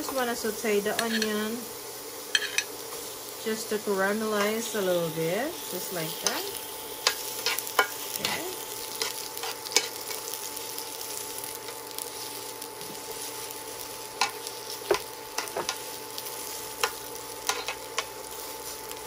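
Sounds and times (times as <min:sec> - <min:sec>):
onion sizzling in hot oil: 0:00.0 - 0:19.0
spoon scraping pan: 0:01.0 - 0:01.4, 0:02.3 - 0:02.7, 0:16.8 - 0:18.1.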